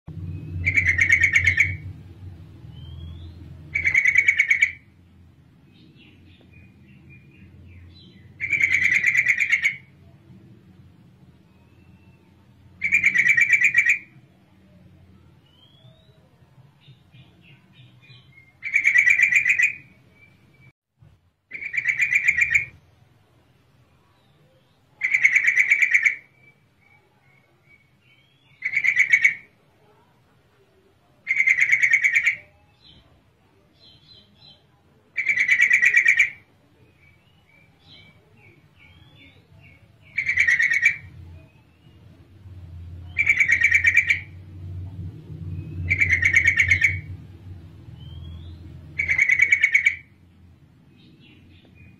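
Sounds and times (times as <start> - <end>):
bird chattering call: 0.6 - 1.9, 3.1 - 4.9, 7.9 - 9.9, 12.8 - 14.1, 18.6 - 19.9, 21.5 - 22.8, 25.0 - 26.4, 28.5 - 29.5, 31.3 - 32.5, 35.2 - 36.4, 40.0 - 41.2, 43.1 - 44.4, 45.8 - 47.1, 48.1 - 50.2.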